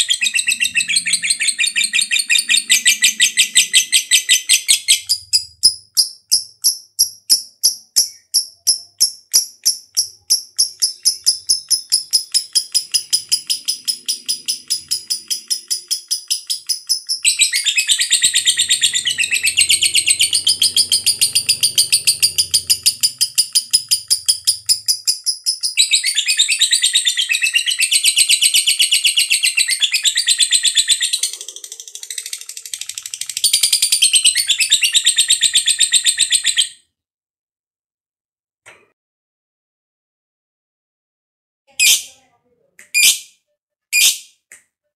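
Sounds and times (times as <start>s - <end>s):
lovebird chirping and warbling: 0.0s - 36.8s, 41.7s - 42.1s, 42.9s - 43.3s, 43.9s - 44.3s.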